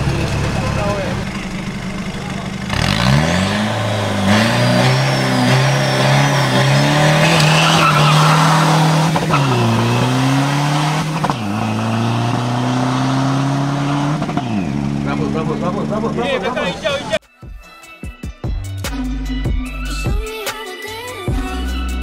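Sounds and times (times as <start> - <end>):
diesel truck engine accelerating: 0.0 - 17.2.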